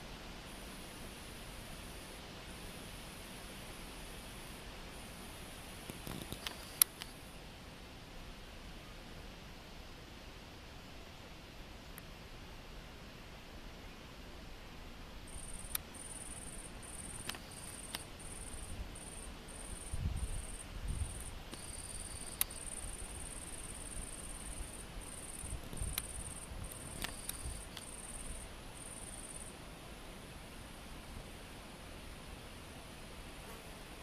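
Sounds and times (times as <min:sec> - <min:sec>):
insect buzzy chirps: 0:00.5 - 0:07.4, 0:15.2 - 0:29.6
sharp clicks: 0:15.6 - 0:15.9, 0:25.6 - 0:27.9.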